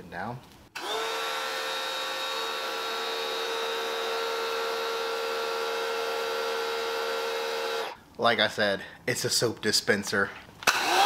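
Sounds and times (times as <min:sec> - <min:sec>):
pressure washer motor whine: 0:00.8 - 0:08.0, 0:10.7 - 0:11.0.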